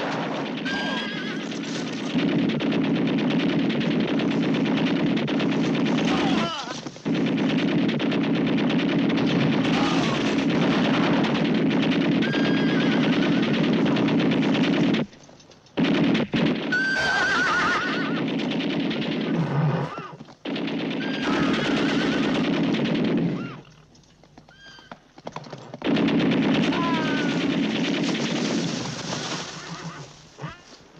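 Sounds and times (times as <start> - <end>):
machine-gun fire: 0.0 - 15.1, 15.8 - 23.7, 25.8 - 30.2
horses neighing: 0.7 - 2.1, 12.2 - 13.6, 16.7 - 18.2, 19.5 - 20.3, 21.0 - 22.4, 23.3 - 25.7, 29.2 - 30.9.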